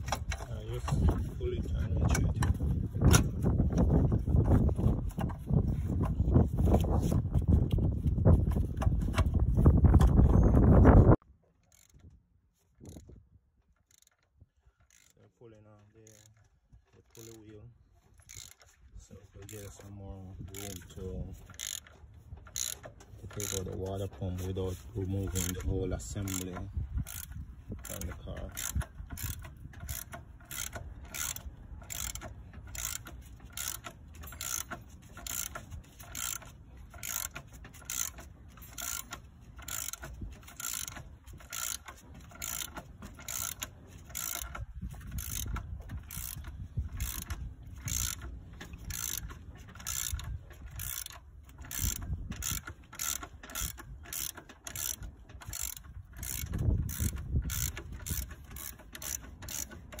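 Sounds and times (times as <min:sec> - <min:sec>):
ratcheting wrench clicking: 0:11.6 - 0:12.1, 0:12.8 - 0:13.2, 0:13.8 - 0:15.3, 0:16.0 - 0:16.5, 0:17.1 - 0:17.5, 0:18.2 - 0:18.8, 0:20.5 - 1:00.0.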